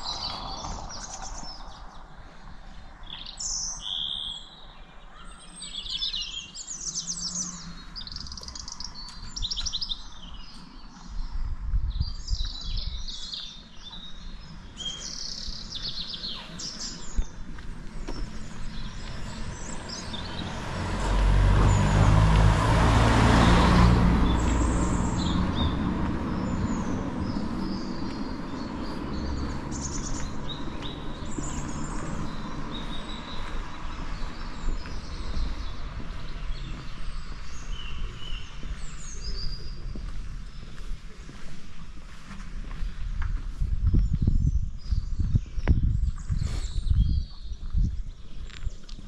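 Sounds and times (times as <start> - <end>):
small birds chirping: 0.0 - 22.2, 23.3 - 49.0
car passing: 17.5 - 39.4.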